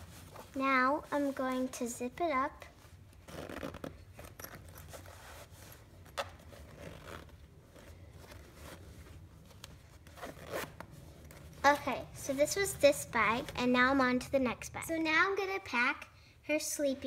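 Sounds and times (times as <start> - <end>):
cloth rustling: 0.0 - 14.1
zipper being pulled closed: 3.1 - 11.7.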